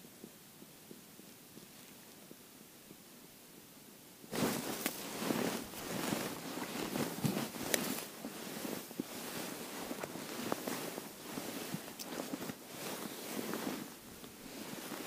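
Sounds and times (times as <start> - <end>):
ice crackling: 4.3 - 15.0
snow crunching: 4.3 - 15.0
winter clothing rustling: 4.3 - 15.0.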